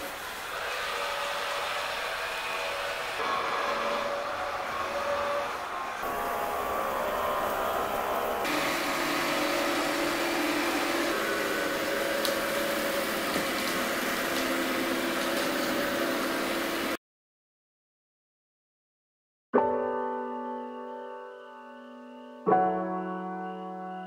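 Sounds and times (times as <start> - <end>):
robot vacuum whirring: 0.0 - 17.0.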